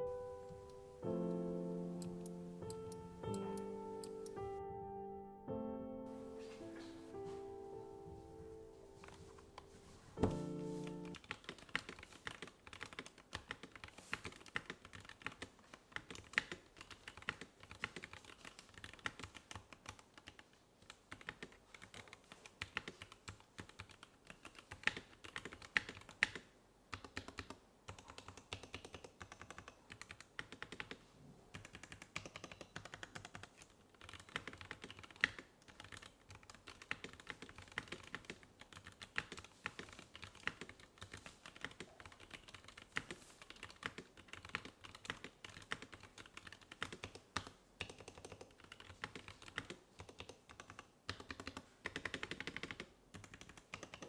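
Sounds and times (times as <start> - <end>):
fast typing on mechanical keyboard: 11.0 - 54.0.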